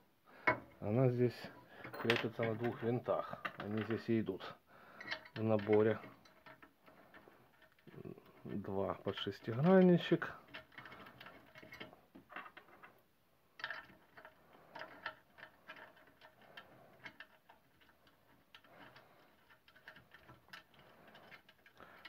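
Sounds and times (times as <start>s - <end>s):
hex key clicks and scrapes: 13.6s - 22.0s.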